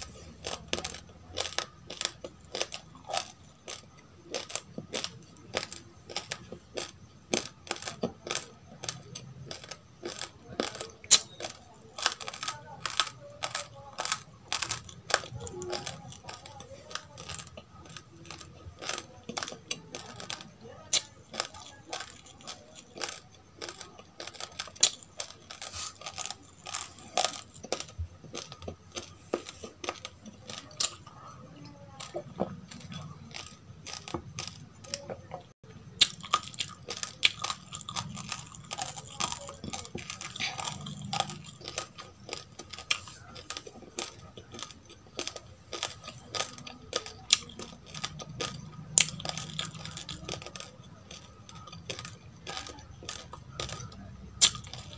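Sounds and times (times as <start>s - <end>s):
crunchy chewing: 0.0s - 54.9s.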